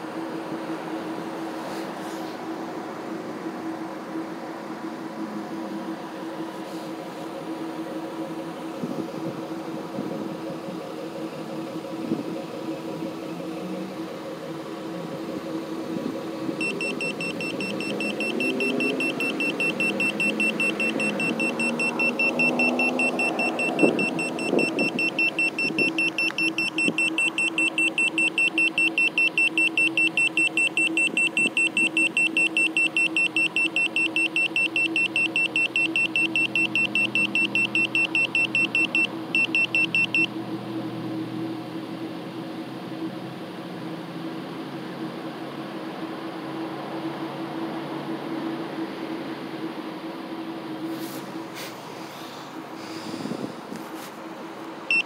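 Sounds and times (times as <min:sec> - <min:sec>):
high-pitched alarm beeps: 0:16.6 - 0:40.3.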